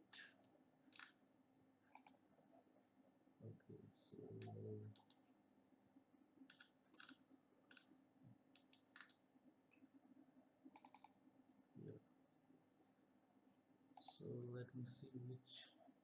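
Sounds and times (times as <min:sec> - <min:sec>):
computer mouse clicks: 0:00.3 - 0:01.2, 0:01.9 - 0:02.3, 0:04.4 - 0:05.3, 0:06.4 - 0:07.9, 0:08.5 - 0:09.9, 0:10.7 - 0:11.2, 0:14.0 - 0:14.3.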